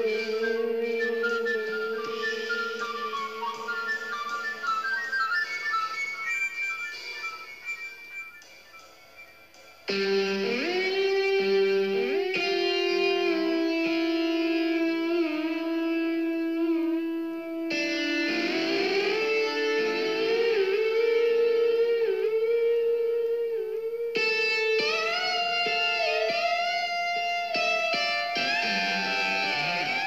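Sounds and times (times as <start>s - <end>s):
instrumental music with sliding notes: 0.0s - 30.0s.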